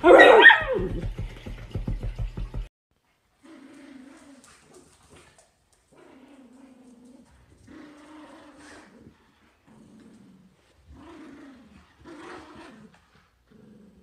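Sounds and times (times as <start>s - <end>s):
dogs growling in play: 3.4s - 14.0s.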